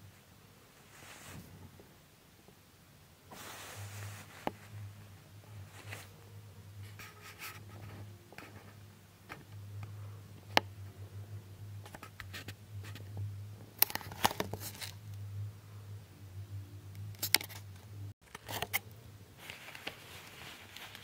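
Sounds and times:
steady low hum: 0:00.0 - 0:21.0
handling scraping and rustling: 0:00.8 - 0:01.8, 0:03.3 - 0:09.6, 0:13.8 - 0:15.1, 0:17.1 - 0:21.0.

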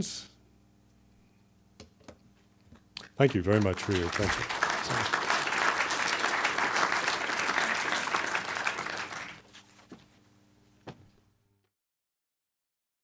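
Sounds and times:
audience applauding: 0:03.1 - 0:09.5.

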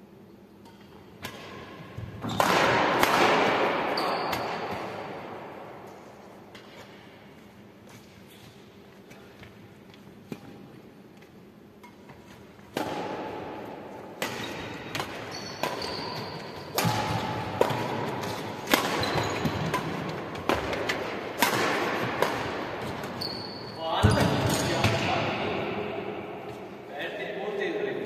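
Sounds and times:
sneaker squeaks: 0:02.0 - 0:02.8, 0:03.8 - 0:05.1, 0:14.3 - 0:20.8, 0:22.3 - 0:25.2
rackets striking shuttlecock: 0:02.3 - 0:05.2, 0:12.7 - 0:13.6, 0:14.2 - 0:23.2.

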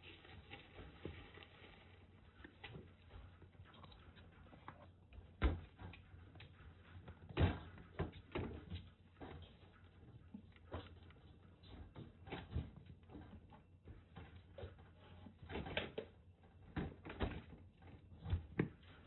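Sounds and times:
kittens' paws thumping on a mat: 0:00.4 - 0:19.0.

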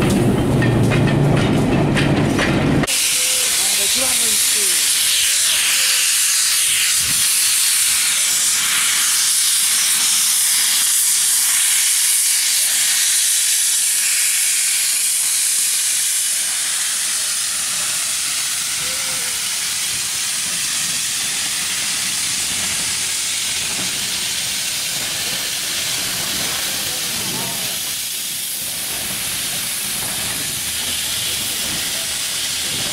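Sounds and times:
steam locomotive hissing steam: 0:02.8 - 0:32.9.

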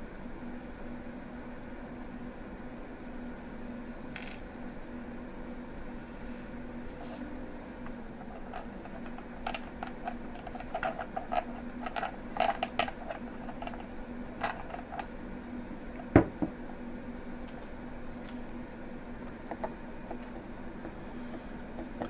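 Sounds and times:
steady low hum: 0:00.0 - 0:22.0
object set down knock: 0:16.2 - 0:16.5.

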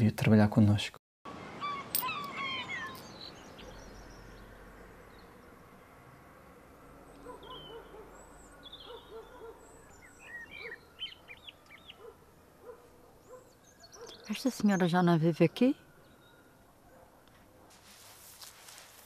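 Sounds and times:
birds hooting: 0:01.3 - 0:04.6, 0:07.1 - 0:14.9
birds chirping: 0:01.3 - 0:05.9, 0:06.9 - 0:17.6.

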